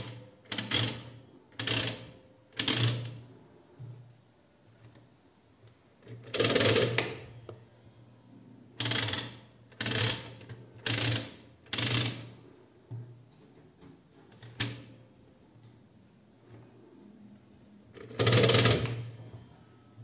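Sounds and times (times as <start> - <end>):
adding machine ratcheting rattle: 18.0 - 19.1.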